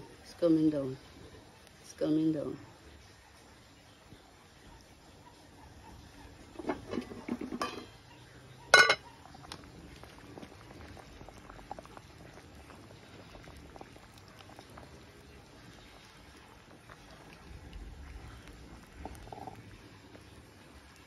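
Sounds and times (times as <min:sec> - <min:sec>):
soup simmering and bubbling: 0:00.0 - 0:21.0
spoon stirring and scraping pot: 0:06.5 - 0:08.0
metallic clank against pot: 0:06.6 - 0:08.0, 0:08.7 - 0:09.0.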